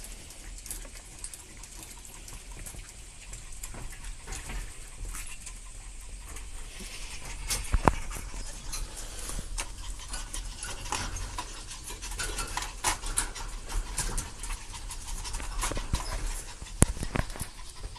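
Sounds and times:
puppies' claws clicking on floor: 0:00.0 - 0:17.9.

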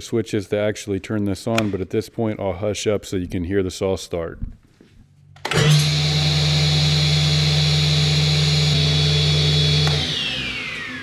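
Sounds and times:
table saw whining: 0:05.5 - 0:11.0.

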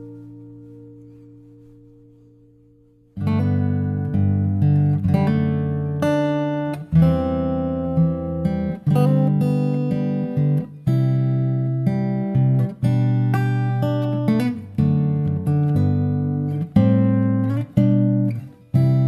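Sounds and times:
strummed acoustic guitar chords: 0:00.0 - 0:19.0.

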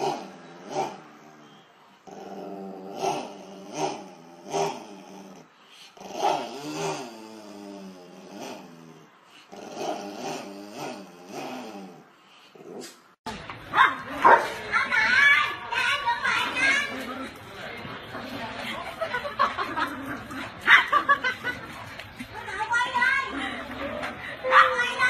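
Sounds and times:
small dog growling: 0:00.0 - 0:13.0, 0:16.4 - 0:18.4
dog barking: 0:13.8 - 0:14.6.

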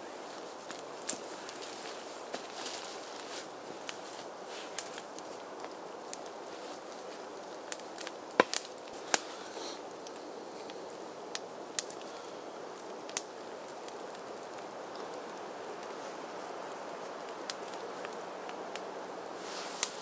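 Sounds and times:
steady hiss: 0:00.0 - 0:20.0
firewood knocking and cracking: 0:08.0 - 0:09.2.

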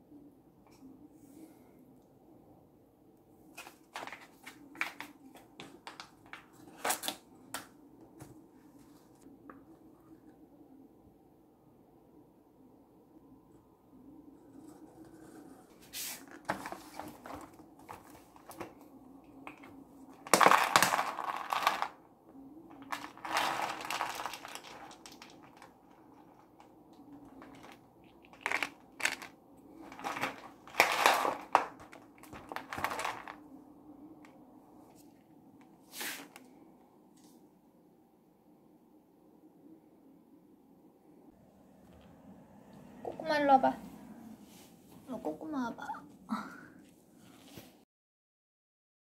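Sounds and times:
dry kibble rattling: 0:20.2 - 0:22.0, 0:22.7 - 0:33.4
food pouch crinkling: 0:20.3 - 0:22.0, 0:22.7 - 0:33.4.

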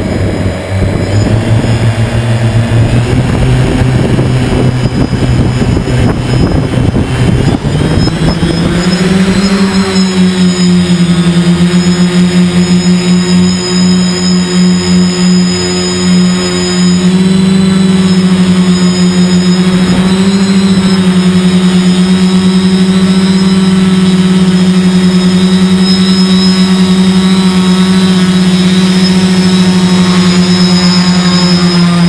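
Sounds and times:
quadcopter motors humming: 0:00.0 - 0:32.0.

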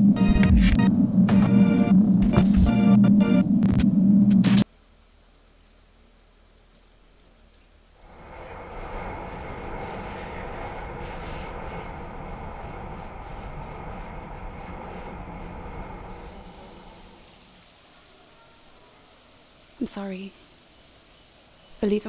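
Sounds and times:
faint low hum: 0:06.2 - 0:17.6
train rumble inside carriage: 0:08.1 - 0:17.3.

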